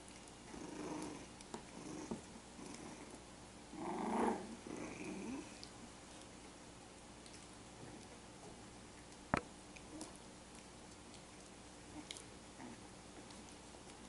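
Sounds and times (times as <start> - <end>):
puppies growling: 0.1 - 6.2, 11.4 - 14.0.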